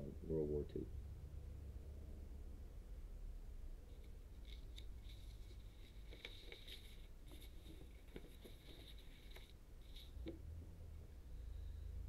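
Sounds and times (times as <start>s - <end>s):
paper rustling: 3.9s - 10.4s.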